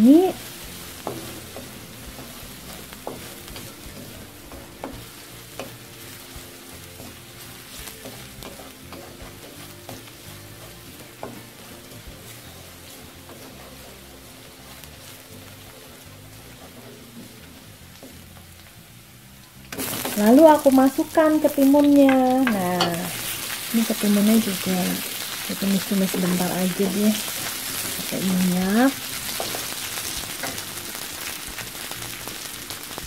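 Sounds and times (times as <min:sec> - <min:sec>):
wooden spatula scraping wok: 0:00.0 - 0:18.7, 0:19.7 - 0:33.0
garlic sizzling in hot oil: 0:00.0 - 0:33.0.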